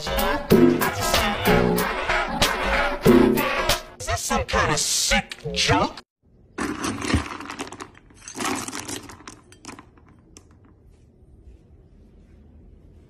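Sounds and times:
kibble rattling in plastic bin: 6.6 - 10.2.

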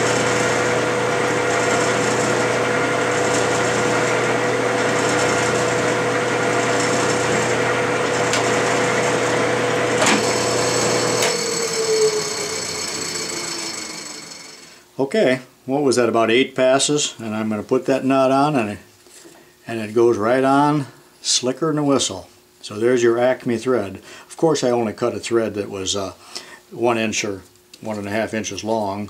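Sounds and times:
metal lathe running: 0.0 - 14.8.

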